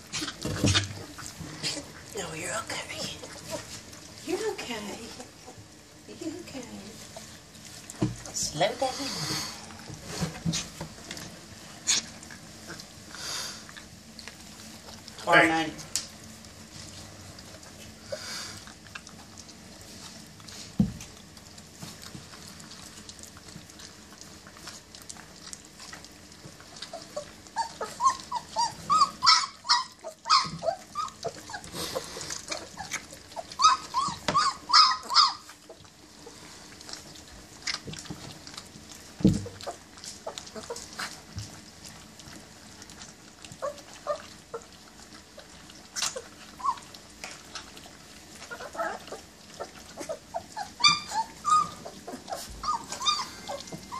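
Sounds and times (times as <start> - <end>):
puppies high-pitched calls: 22.2 - 53.9.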